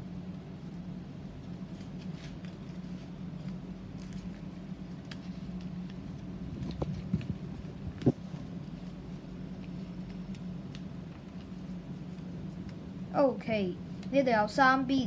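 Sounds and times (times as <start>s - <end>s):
steady low hum: 0.0s - 15.0s
paper being folded and creased: 1.4s - 13.0s.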